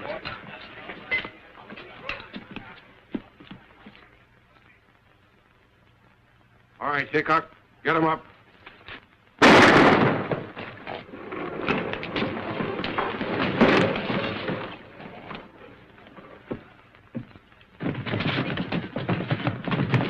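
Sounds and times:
clatter of many footsteps: 0.0s - 4.7s, 10.0s - 20.0s
loud crash: 9.4s - 10.9s
scuffling with knocks: 10.3s - 20.0s.

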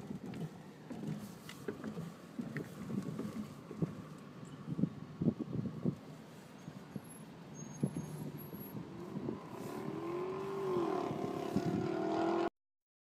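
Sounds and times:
car engine from inside cabin: 7.8s - 12.5s.

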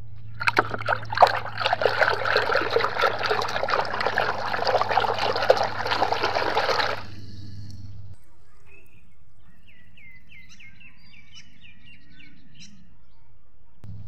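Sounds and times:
water splashing in a basin: 0.4s - 7.3s.

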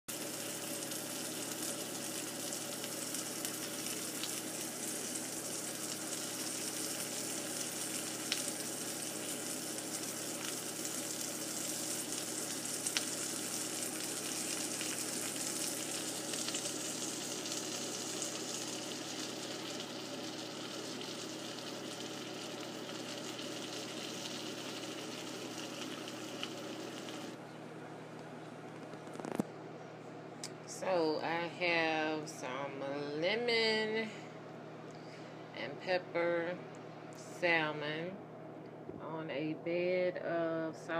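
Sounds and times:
fish sizzling in oil: 0.1s - 27.4s.

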